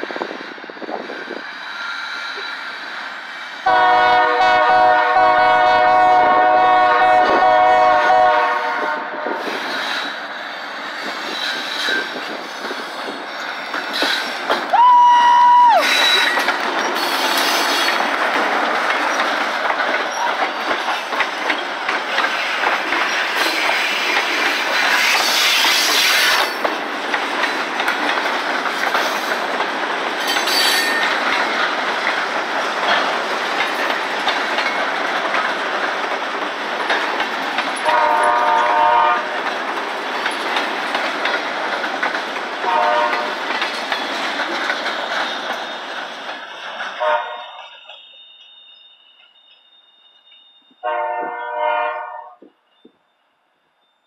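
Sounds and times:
train wheels clattering: 0:00.0 - 0:51.4
diesel locomotive passing: 0:00.0 - 0:52.8
train horn blast: 0:03.6 - 0:09.4, 0:37.8 - 0:39.4, 0:42.6 - 0:43.4, 0:47.0 - 0:47.6, 0:50.8 - 0:52.4.

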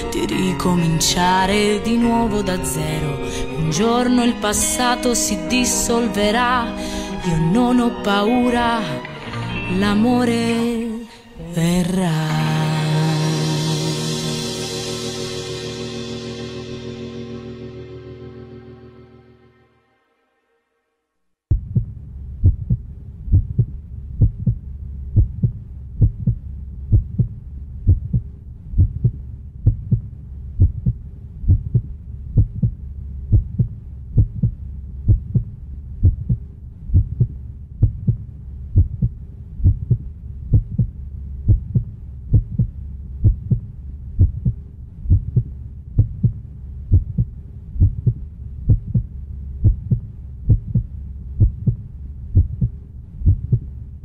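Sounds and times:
low steady drone: 0:12.7 - 0:20.2
heartbeat thumps: 0:21.5 - 0:53.7.

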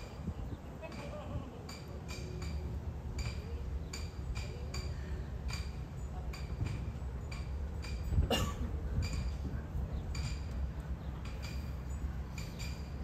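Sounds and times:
light metallic clinks: 0:09.0 - 0:13.0.

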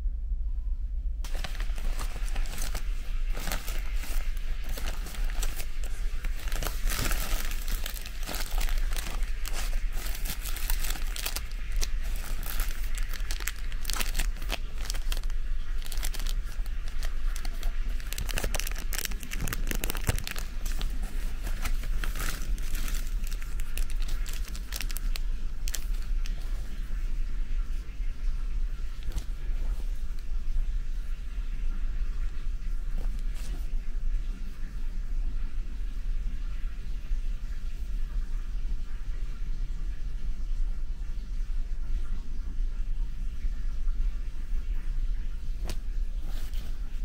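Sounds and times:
steady low hum: 0:00.0 - 0:47.0
crinkling and crackling: 0:01.2 - 0:30.7, 0:31.3 - 0:34.0, 0:45.4 - 0:47.0.

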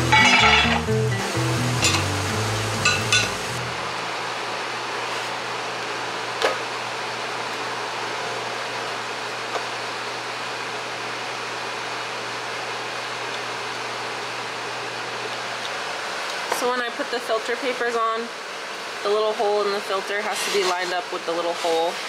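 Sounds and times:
background music: 0:00.0 - 0:03.7.

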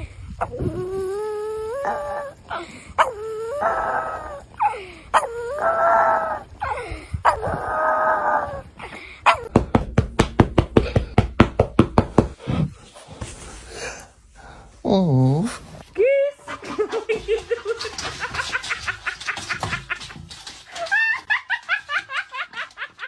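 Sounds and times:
dog howling: 0:00.4 - 0:02.4, 0:03.0 - 0:04.6, 0:05.2 - 0:08.7.

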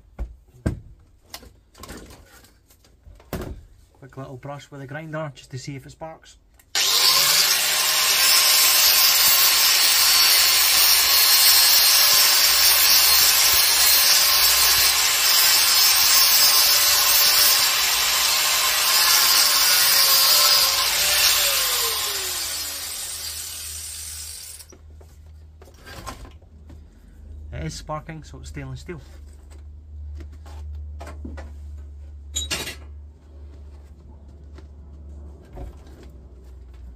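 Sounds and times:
angle grinder grinding metal: 0:06.8 - 0:24.8.

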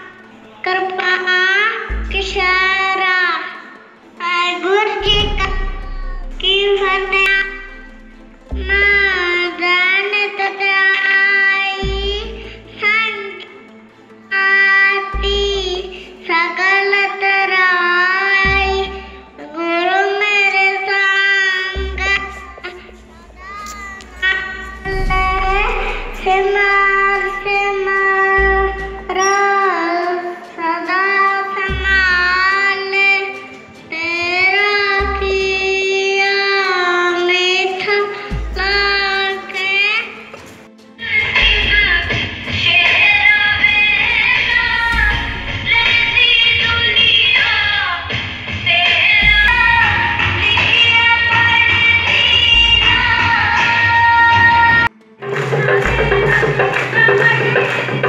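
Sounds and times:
boy singing into microphone: 0:00.0 - 0:07.6, 0:08.6 - 0:13.4, 0:14.3 - 0:40.3, 0:48.7 - 0:54.9
deep drum strokes: 0:05.0 - 0:09.2, 0:24.2 - 0:28.9, 0:44.1 - 0:47.4
steady drone: 0:05.0 - 0:10.0, 0:21.8 - 0:29.2, 0:43.6 - 0:47.8.

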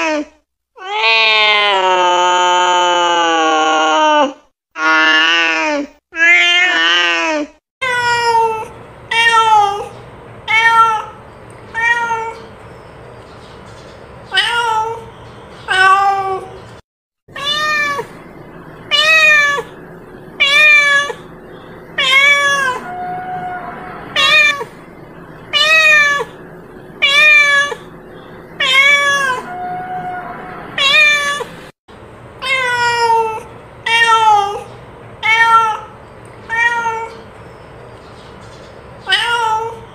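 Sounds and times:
cat meowing: 0:00.8 - 0:04.2, 0:10.5 - 0:12.5, 0:14.3 - 0:15.1, 0:17.3 - 0:19.8, 0:20.4 - 0:21.3, 0:22.0 - 0:26.4, 0:27.0 - 0:27.9, 0:28.6 - 0:31.6, 0:32.4 - 0:37.2, 0:39.0 - 0:39.9.

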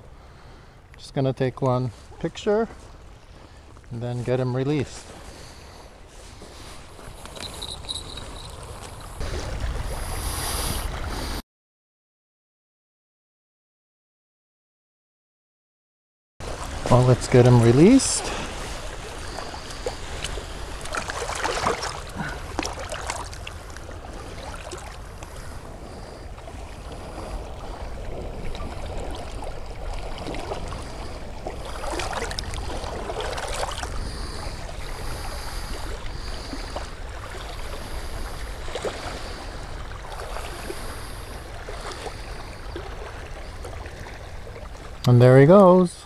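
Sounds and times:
water sloshing and splashing: 0:01.6 - 0:11.4, 0:16.4 - 0:45.1
wind rumbling on microphone: 0:04.9 - 0:11.4, 0:16.4 - 0:45.0.

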